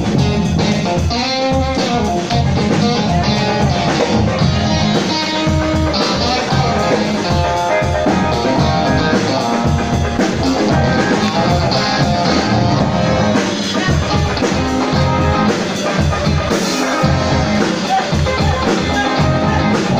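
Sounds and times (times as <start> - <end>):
drum kit: 0.0 - 19.9
electric guitar: 0.0 - 19.9.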